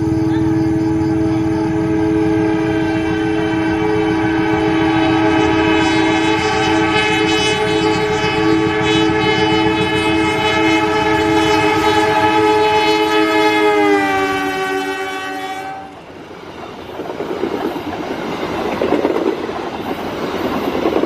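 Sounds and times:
locomotive horn long blast: 0.0s - 16.1s
train rumbling on track: 0.0s - 21.0s.

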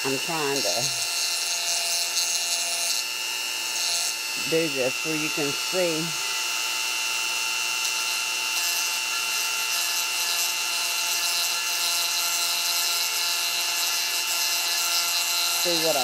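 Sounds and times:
grinding stone hiss: 0.0s - 3.0s, 3.7s - 6.4s, 9.6s - 16.0s
rotary tool whining: 0.0s - 16.0s.

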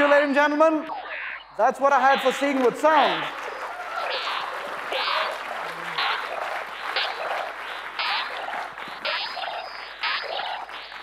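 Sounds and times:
electronic soundscape: 0.0s - 11.0s
audience applauding: 2.2s - 11.0s.

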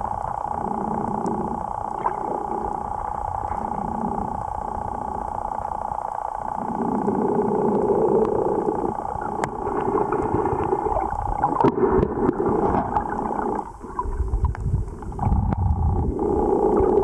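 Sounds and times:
steady hum: 0.0s - 17.0s
water sloshing and gurgling underwater: 0.0s - 17.0s.

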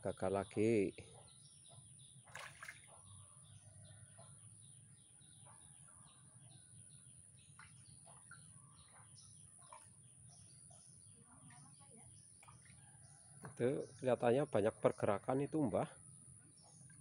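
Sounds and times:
bird chirping: 0.0s - 17.0s
fish splash: 2.2s - 3.0s.

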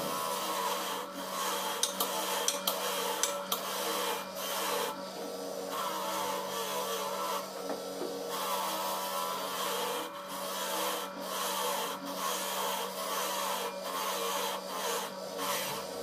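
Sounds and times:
electric grinder humming: 0.0s - 5.0s, 5.6s - 7.5s, 8.3s - 16.0s
metal rasping against grinder: 0.0s - 5.0s, 5.7s - 7.5s, 8.3s - 16.0s.

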